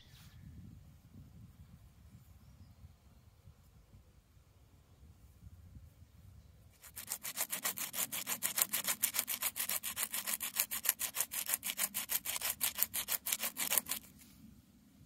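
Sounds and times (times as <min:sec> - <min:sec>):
bone rasping on stone: 0:06.8 - 0:14.2.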